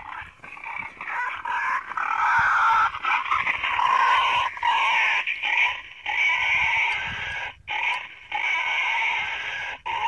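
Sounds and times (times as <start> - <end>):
wild boar squealing: 0.0 - 10.0.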